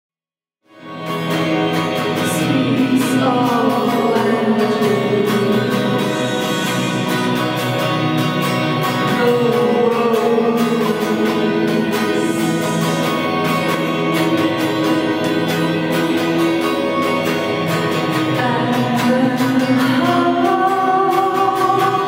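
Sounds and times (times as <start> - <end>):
electric guitar: 0.7 - 22.0
woman singing slow melody: 2.2 - 7.2, 9.0 - 13.3, 18.3 - 22.0.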